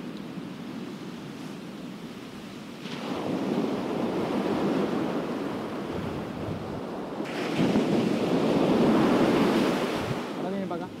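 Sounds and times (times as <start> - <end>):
wind on microphone: 0.0 - 11.0
surf breaking on beach: 2.8 - 11.0.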